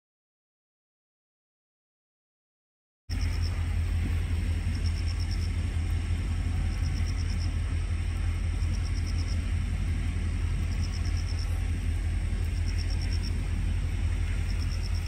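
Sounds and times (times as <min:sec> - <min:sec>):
high-pitched pulsing trill: 0:03.1 - 0:15.0
low outdoor rumble: 0:03.1 - 0:15.0.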